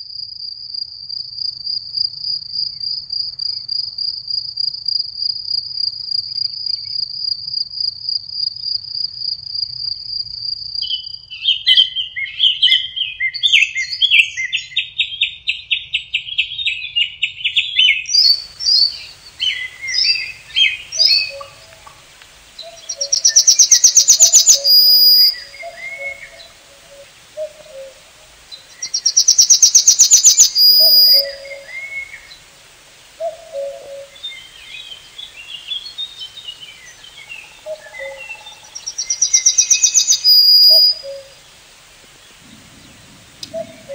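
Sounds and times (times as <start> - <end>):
loud trilled birdsong: 11.5 - 43.9
birds chirping: 17.6 - 43.9
low short bird calls: 17.8 - 43.9
bird fast trill: 22.6 - 27.2, 28.7 - 32.4, 33.6 - 41.3.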